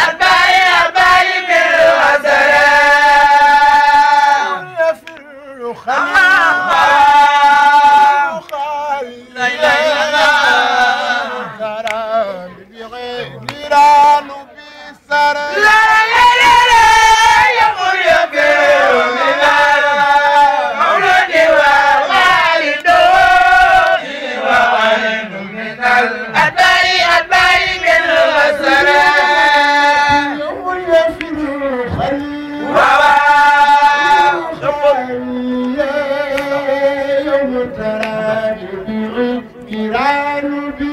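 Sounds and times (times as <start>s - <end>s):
man chanting a devotional song: 2.2s - 17.6s, 28.6s - 40.9s.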